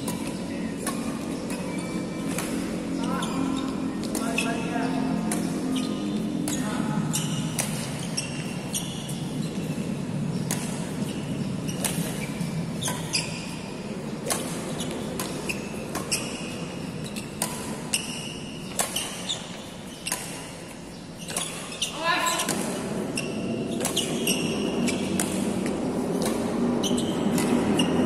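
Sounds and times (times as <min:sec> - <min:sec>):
shuttlecock hit with rackets: 0:00.0 - 0:02.8, 0:07.5 - 0:08.0, 0:11.8 - 0:12.2, 0:14.2 - 0:16.2, 0:17.4 - 0:19.3, 0:25.0 - 0:26.6, 0:27.3 - 0:27.9
court shoes squeaking: 0:00.0 - 0:28.0
low hum in echoing hall: 0:00.0 - 0:28.0.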